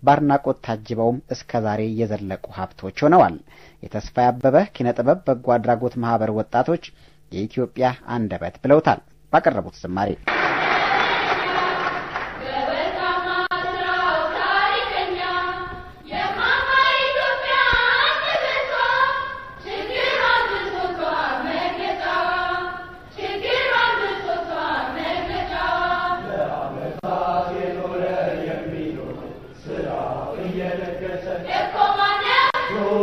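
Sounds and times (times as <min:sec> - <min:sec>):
youth choir singing: 0:10.6 - 0:33.0.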